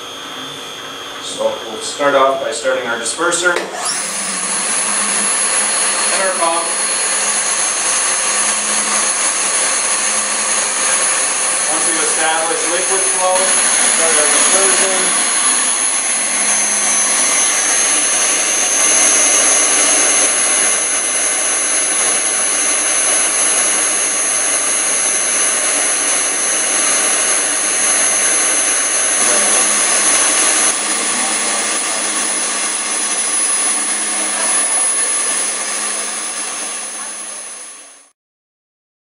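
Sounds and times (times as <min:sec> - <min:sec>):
high-pitched machine whine: 0:00.0 - 0:38.1.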